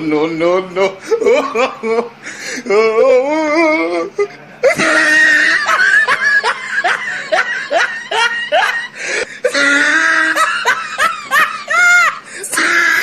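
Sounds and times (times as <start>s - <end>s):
high-pitched squeaky laughter: 4.6s - 13.0s.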